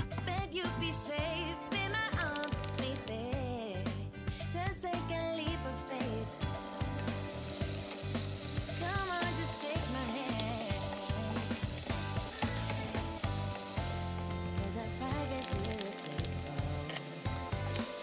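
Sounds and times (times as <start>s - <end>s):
meat sizzling in oil: 6.4s - 18.0s.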